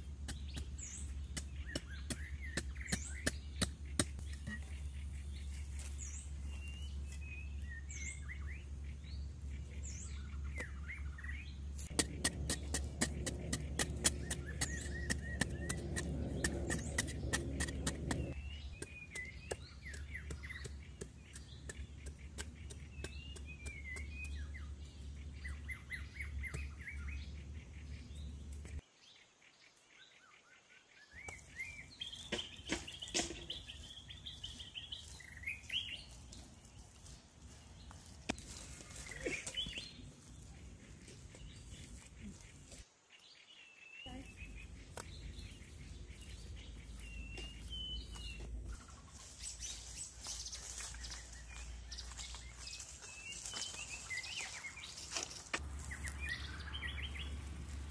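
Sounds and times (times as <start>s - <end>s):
birds chirping: 0.0s - 57.9s
metal digging bar striking stony soil: 11.8s - 24.4s, 32.3s - 33.6s.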